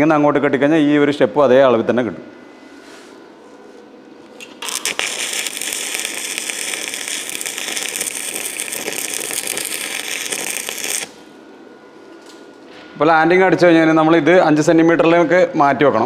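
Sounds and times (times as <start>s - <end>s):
arc welding crackle: 4.3s - 11.4s.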